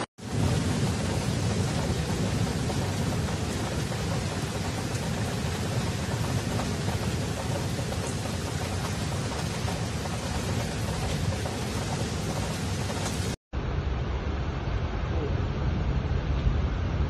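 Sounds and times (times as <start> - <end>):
floodwater rushing: 0.0 - 13.4
heavy rain: 0.0 - 17.0.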